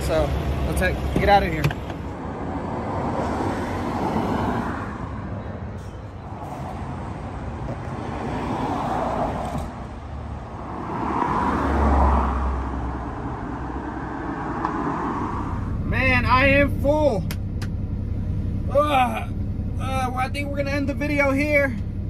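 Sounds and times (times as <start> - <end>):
vehicles passing: 0.0 - 22.0.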